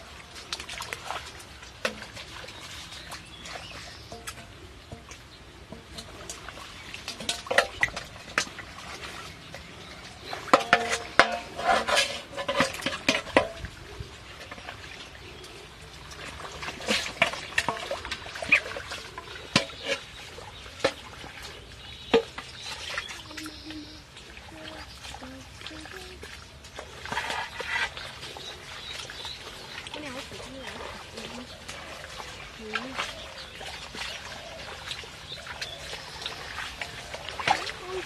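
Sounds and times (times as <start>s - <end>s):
water splashing and pouring: 0.0s - 38.0s
metal clinking and scraping: 10.5s - 13.6s.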